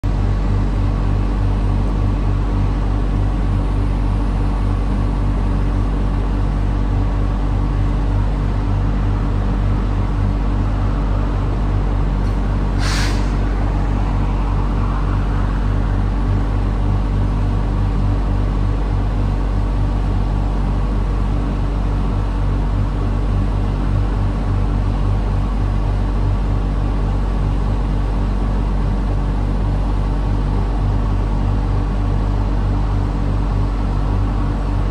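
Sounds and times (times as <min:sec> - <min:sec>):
diesel engines idling: 0:00.1 - 0:34.9
compressed air hiss: 0:12.7 - 0:16.1.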